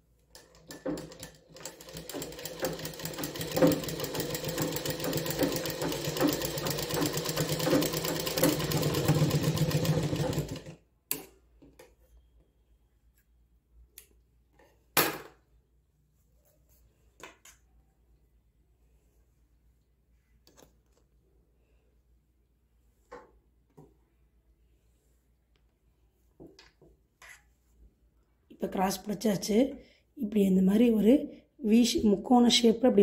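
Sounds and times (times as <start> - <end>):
knocks and clicks of handling fabric: 0.3 - 8.9, 25.5 - 27.4
sewing machine running fast: 0.8 - 10.8.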